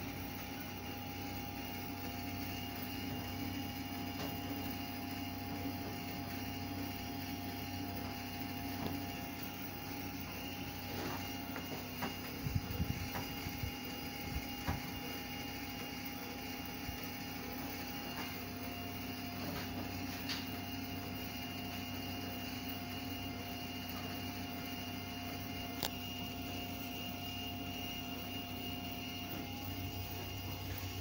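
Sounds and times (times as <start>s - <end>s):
electric railcar equipment hum: 0.0s - 31.0s.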